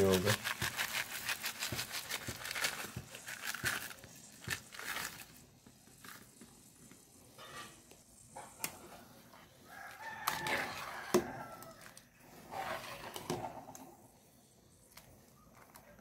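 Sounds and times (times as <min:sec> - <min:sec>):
rooster crowing: 0:09.6 - 0:12.0.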